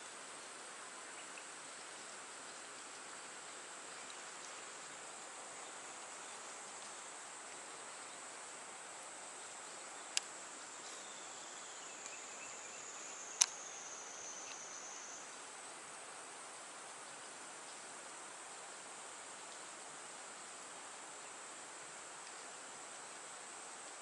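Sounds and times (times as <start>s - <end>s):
outdoor hiss: 0.0s - 24.0s
high-pitched insect drone: 10.9s - 15.4s
sharp clicks: 13.4s - 13.6s.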